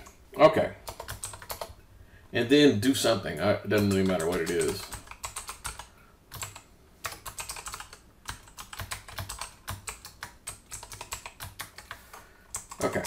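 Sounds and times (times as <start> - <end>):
typing on computer keyboard: 0.8 - 1.8, 3.8 - 13.0.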